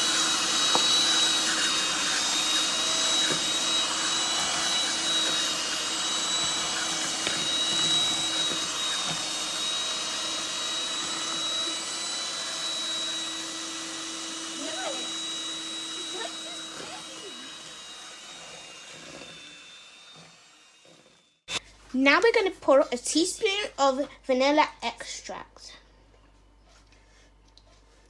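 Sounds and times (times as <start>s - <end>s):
electric hand mixer whining: 0.0s - 21.6s.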